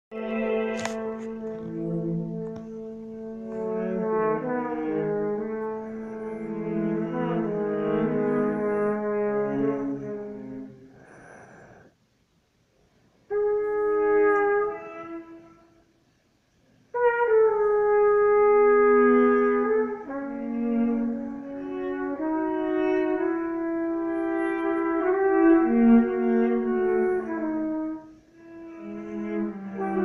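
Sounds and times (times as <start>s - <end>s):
trumpet holding long notes: 0.1s - 11.1s, 13.3s - 15.9s, 16.9s - 30.0s
bowed viola: 0.1s - 11.2s, 13.3s - 15.8s, 17.0s - 30.0s
breathy toneless blow: 1.2s - 12.0s.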